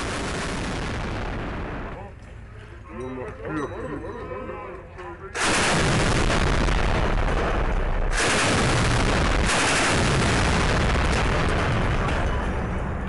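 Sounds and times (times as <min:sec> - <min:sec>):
machine gun automatic fire: 0:05.4 - 0:06.4, 0:07.2 - 0:11.7.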